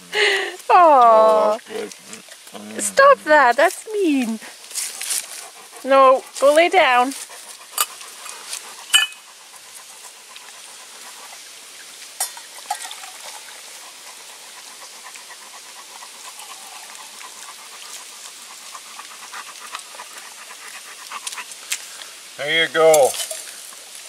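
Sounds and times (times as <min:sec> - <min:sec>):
dog panting: 0:00.2 - 0:11.6, 0:13.2 - 0:22.0
metal camp pots clinking: 0:07.7 - 0:09.3, 0:12.2 - 0:13.6, 0:22.8 - 0:23.8.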